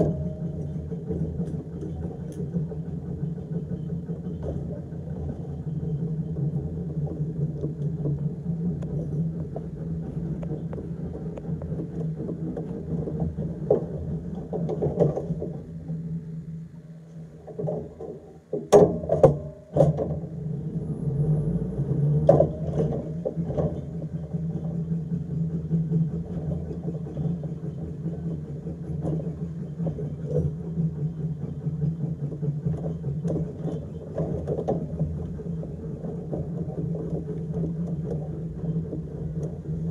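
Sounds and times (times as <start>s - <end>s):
tram hum: 0.0s - 39.9s
loud knocks and clunks: 17.5s - 20.4s, 22.1s - 24.2s.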